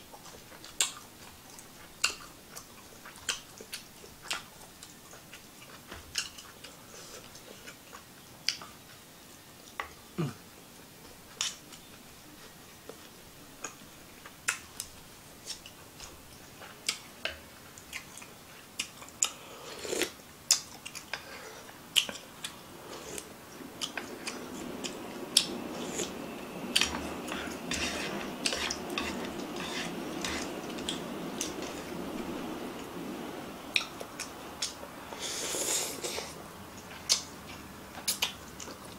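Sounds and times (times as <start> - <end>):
slurping noodles: 19.3 - 20.2, 21.1 - 33.0, 35.0 - 36.4.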